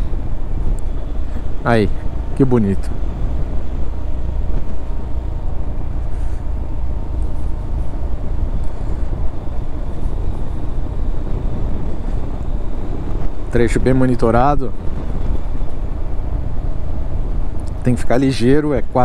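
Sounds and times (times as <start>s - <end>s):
wind and road noise: 0.0s - 19.0s.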